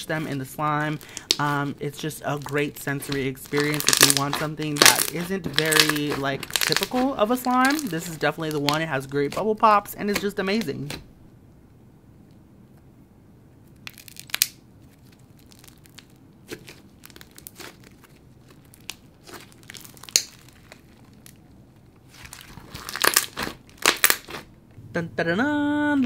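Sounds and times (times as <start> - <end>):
slime squishing and popping: 2.4 - 9.4, 13.8 - 21.4, 22.0 - 24.5.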